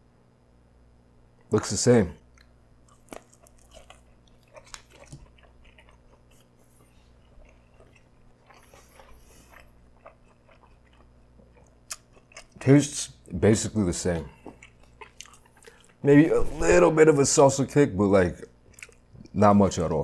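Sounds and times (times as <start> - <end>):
man chewing food: 2.2 - 13.4, 14.1 - 16.8, 18.4 - 19.4.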